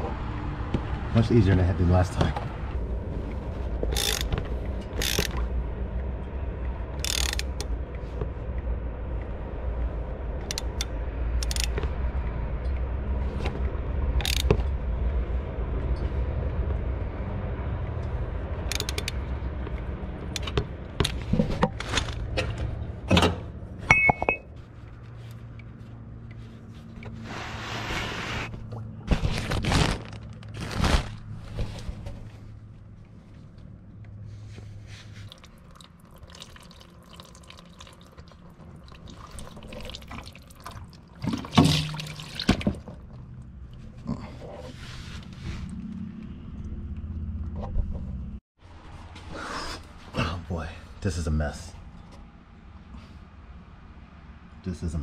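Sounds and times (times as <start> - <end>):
low steady rumble: 0.0 - 27.9, 28.5 - 49.1
ratchet metallic clicks: 3.9 - 5.4, 7.0 - 7.7, 10.5 - 11.8, 14.2 - 14.5, 18.7 - 19.2.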